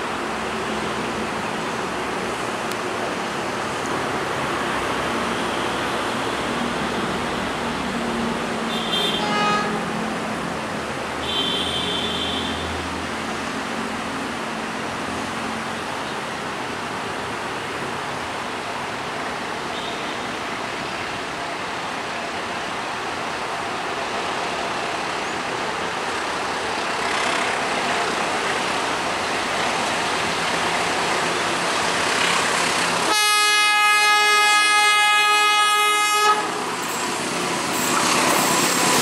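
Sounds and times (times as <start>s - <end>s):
freight train rushing: 0.0s - 39.0s
train horn: 8.8s - 9.9s, 33.0s - 36.6s.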